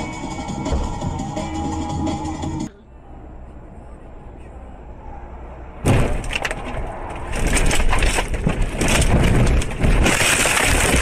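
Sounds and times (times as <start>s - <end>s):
car crash impact: 5.8s - 11.0s
crunching and breaking: 5.9s - 11.0s.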